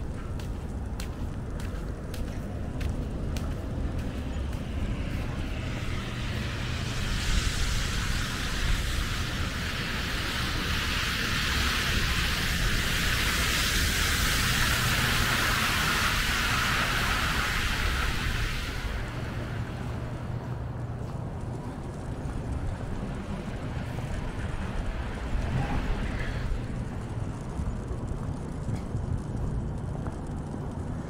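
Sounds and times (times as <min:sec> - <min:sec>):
wind rumble on microphone: 0:00.0 - 0:31.0
tyres hissing on slush: 0:06.7 - 0:19.0.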